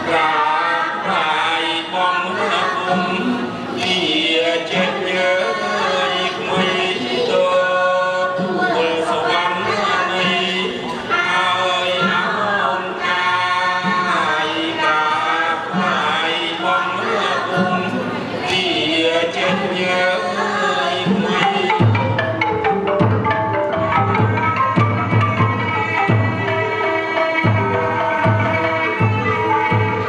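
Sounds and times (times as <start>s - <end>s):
chorus singing long held notes: 0.0s - 30.0s.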